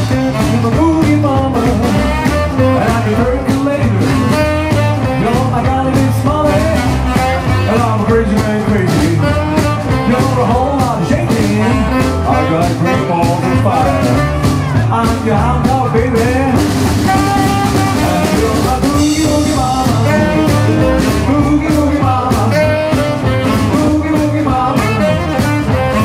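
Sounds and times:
rock and roll band playing: 0.0 - 26.0.

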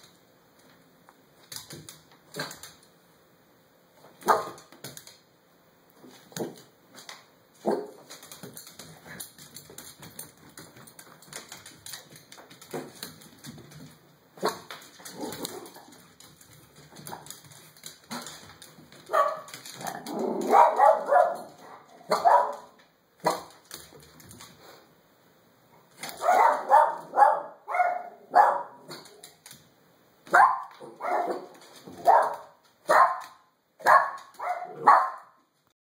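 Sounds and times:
small dog barking: 4.2 - 4.6, 7.6 - 8.0, 19.1 - 19.5, 20.4 - 23.5, 26.2 - 29.0, 30.3 - 35.4.

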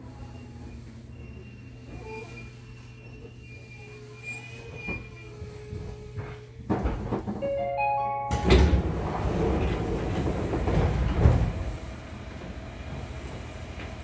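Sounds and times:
train car humming: 0.0 - 14.0
door panels rumbling: 8.3 - 12.7.

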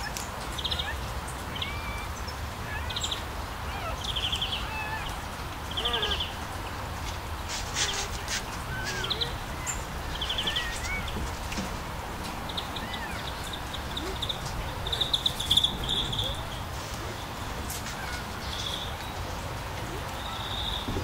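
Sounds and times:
puppies whimpering and squeaking: 0.0 - 5.1, 7.5 - 11.6, 12.3 - 19.0
fast chirping trills: 12.5 - 16.7.

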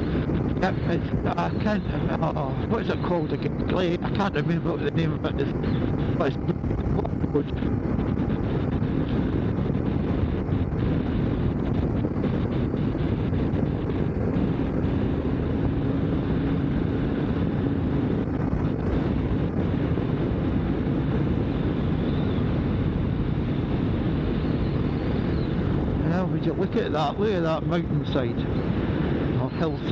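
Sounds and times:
wind noise: 0.0 - 29.9
motorcycle engine cruising: 5.4 - 26.4.

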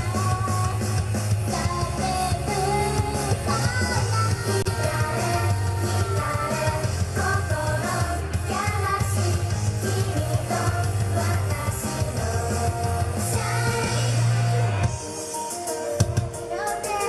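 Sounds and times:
heavy bass line: 0.0 - 15.0
upbeat pop rock band: 0.0 - 17.0
group singing: 4.7 - 14.4.

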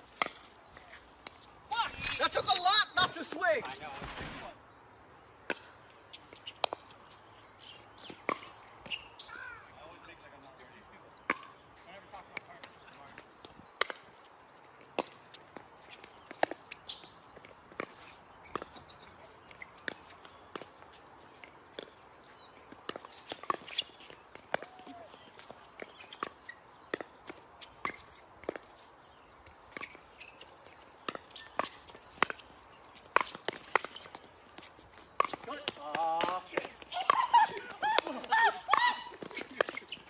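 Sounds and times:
paddles striking pickleball: 11.2 - 11.6, 30.7 - 40.0.

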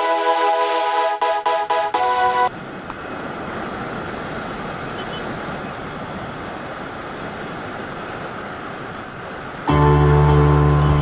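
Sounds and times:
electronic music: 0.0 - 2.5, 9.7 - 11.0.

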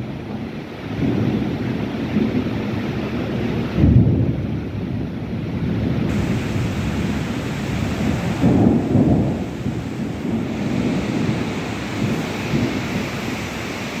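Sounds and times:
heavy rain pouring: 0.0 - 14.0
low rumble: 6.1 - 13.4.

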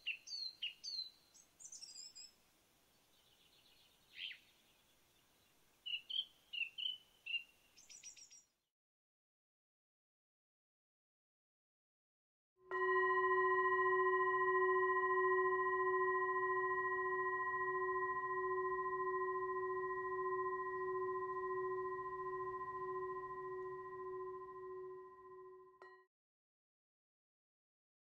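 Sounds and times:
singing bowl ringing: 12.7 - 26.1.

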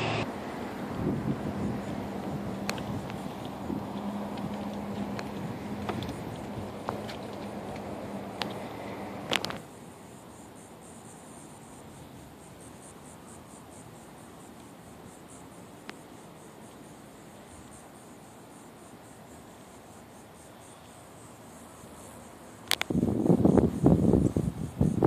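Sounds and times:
insects chirping: 0.0 - 25.0
faint click: 22.6 - 22.9.

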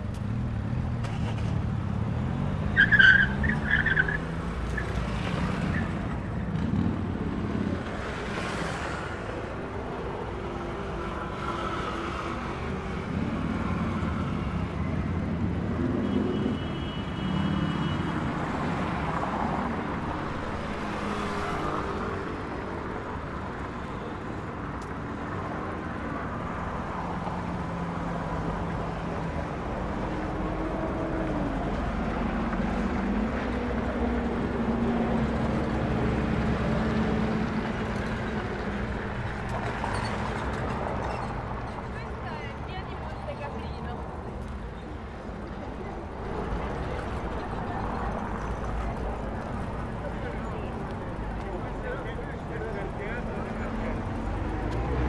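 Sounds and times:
vehicles passing: 0.0 - 55.0.

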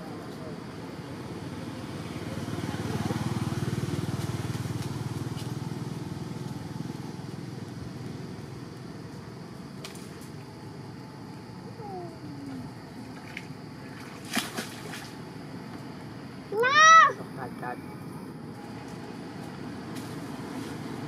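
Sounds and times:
passing vehicle engine: 0.0 - 9.4.

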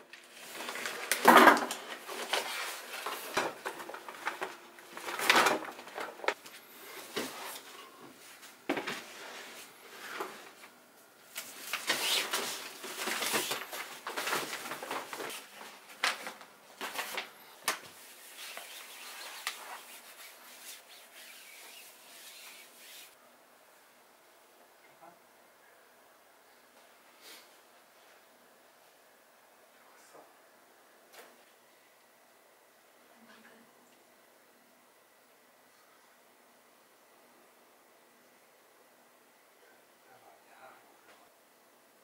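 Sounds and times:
plastic bags rustling: 0.1 - 7.7, 8.3 - 23.2
cloth rubbing cabinet floor: 17.9 - 23.2.

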